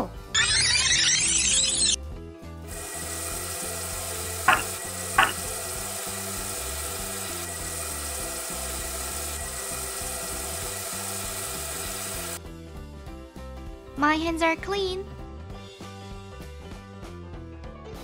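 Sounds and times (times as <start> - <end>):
tap water running into sink: 2.8 - 12.4
hands washing under water: 4.5 - 5.6.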